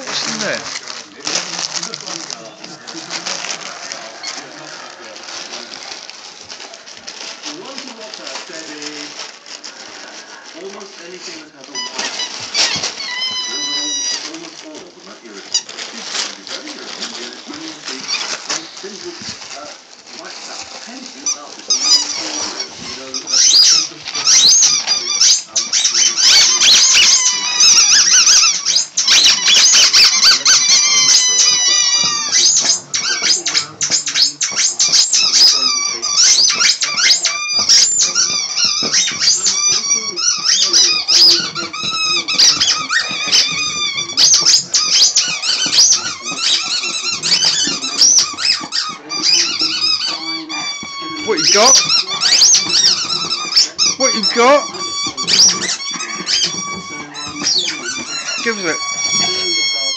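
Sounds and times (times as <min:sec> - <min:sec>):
squeaky toy squeaking: 0:00.0 - 0:00.8, 0:11.7 - 0:14.3, 0:15.5 - 0:15.9, 0:18.0 - 0:18.5, 0:21.2 - 0:59.9
dog chewing: 0:00.0 - 0:59.9.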